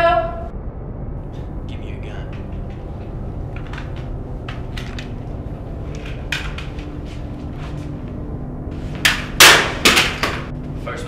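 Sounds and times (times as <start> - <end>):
tense film score drone: 0.0 - 11.0
sharp crack: 9.0 - 10.5.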